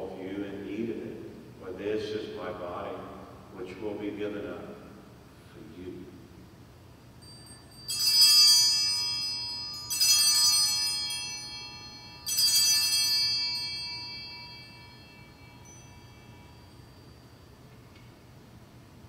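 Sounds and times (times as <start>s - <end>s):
altar bells ringing: 7.2s - 18.4s.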